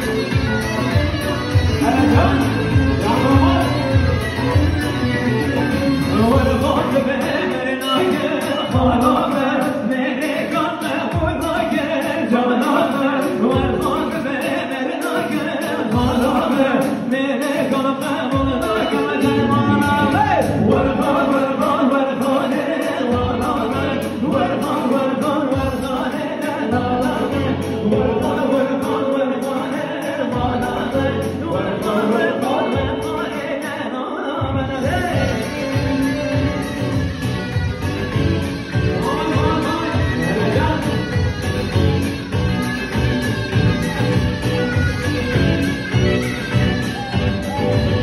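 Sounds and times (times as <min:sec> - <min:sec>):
electric keyboard: 0:00.0 - 0:09.1, 0:35.2 - 0:48.0
drum beat: 0:00.0 - 0:09.6, 0:10.8 - 0:14.6, 0:15.2 - 0:16.9, 0:17.6 - 0:21.3, 0:34.4 - 0:48.0
man singing into a microphone: 0:00.0 - 0:48.0.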